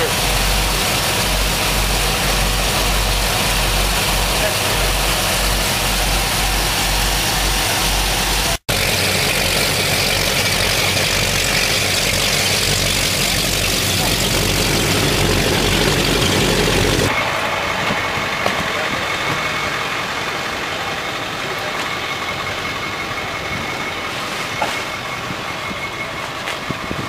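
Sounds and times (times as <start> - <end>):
rushing water: 0.0 - 17.1
boat engines running: 0.0 - 27.0
wind noise: 25.2 - 27.0.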